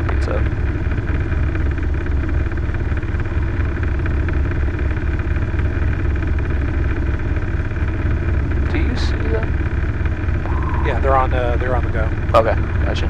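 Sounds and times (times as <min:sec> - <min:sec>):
helicopter engine and rotor drone: 0:00.0 - 0:13.0.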